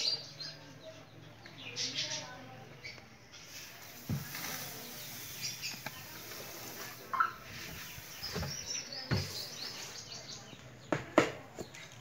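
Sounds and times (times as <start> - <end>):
small birds chirping: 0.0 - 12.0
grain husks pouring: 3.6 - 8.6.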